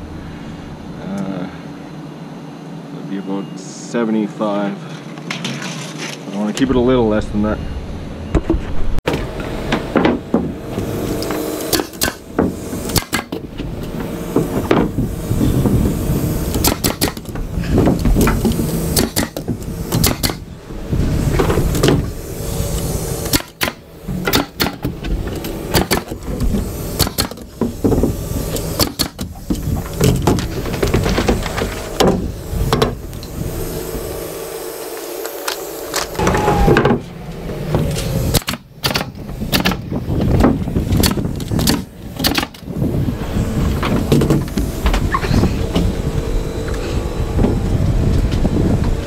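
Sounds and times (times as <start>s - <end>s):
steady low hum: 0.0s - 49.0s
nail gun shots: 11.2s - 13.4s, 16.5s - 20.5s, 23.2s - 24.9s, 25.7s - 26.2s, 26.9s - 30.4s, 38.3s - 39.8s, 40.4s - 42.6s.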